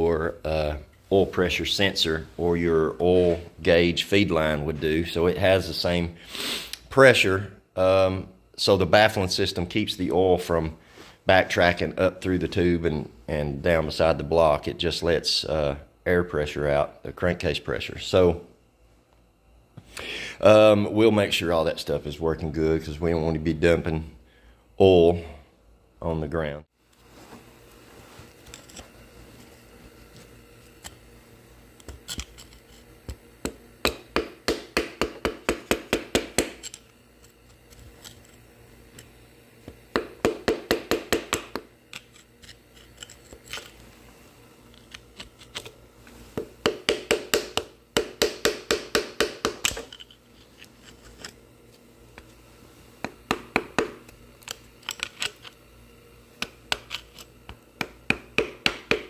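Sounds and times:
scraper blade scraping metal: 0:31.9 - 0:32.9, 0:41.9 - 0:43.8.

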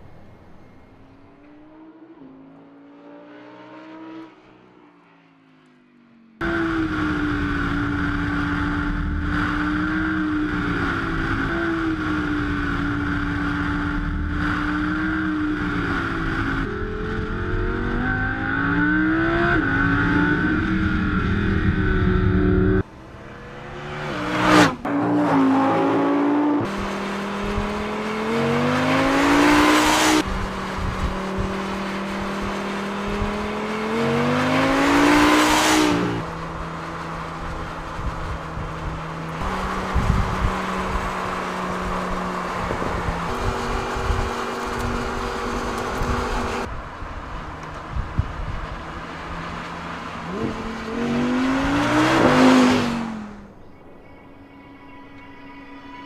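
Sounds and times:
car passing by fast: 0:22.6 - 0:53.6
sports car engine revving: 0:47.7 - 0:53.6.

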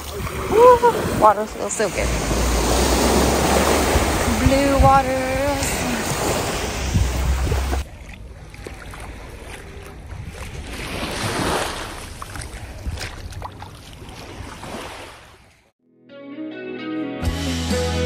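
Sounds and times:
wind rumbling on microphone: 0:00.0 - 0:08.0
small waves washing on beach: 0:00.0 - 0:15.7.

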